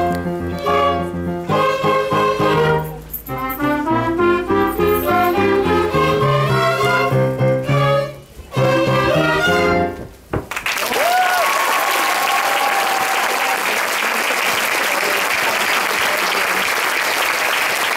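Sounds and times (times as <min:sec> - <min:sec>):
orchestra of violins and clarinet: 0:00.0 - 0:10.0
audience applauding: 0:10.5 - 0:17.9.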